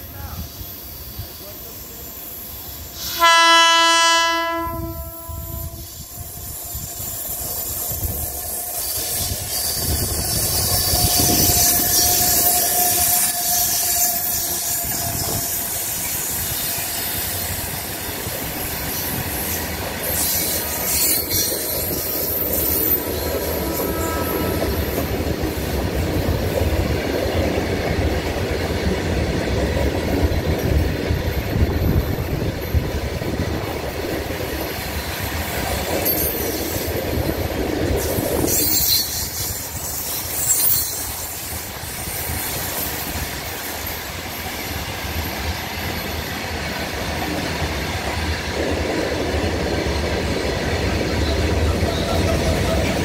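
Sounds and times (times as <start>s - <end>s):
high-pitched wheel squeal: 5.3s - 17.4s, 19.5s - 25.0s, 38.4s - 42.8s.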